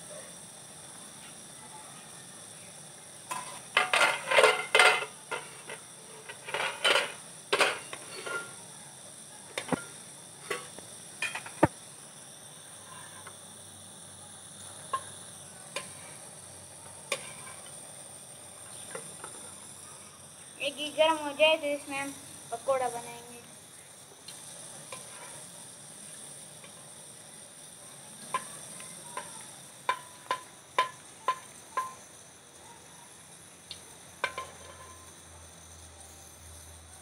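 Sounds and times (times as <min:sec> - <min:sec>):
insect chirring: 0:00.0 - 0:37.0
metal spoon scraping metal pan: 0:03.3 - 0:08.5, 0:17.1 - 0:17.7.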